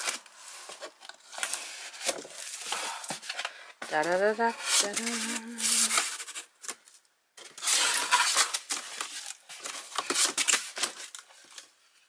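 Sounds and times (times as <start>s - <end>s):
packaging rustling and crinkling: 0.0s - 12.0s.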